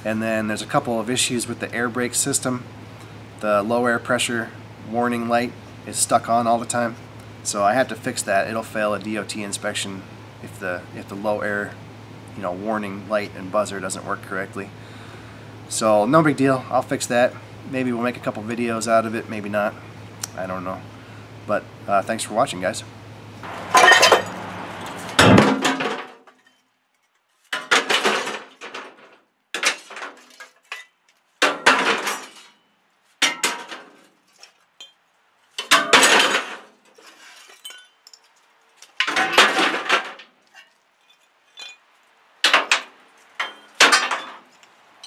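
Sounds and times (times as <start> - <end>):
hard objects clinking and clattering: 23.5 - 32.6, 35.6 - 44.7.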